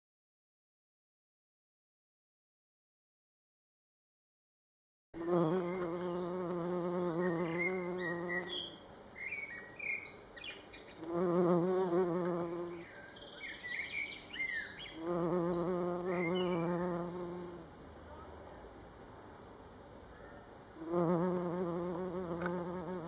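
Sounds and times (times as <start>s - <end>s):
bumblebee buzzing: 5.2s - 8.8s, 10.9s - 12.9s, 14.8s - 17.7s, 20.8s - 23.0s
small birds chirping: 5.2s - 18.8s, 20.1s - 23.0s.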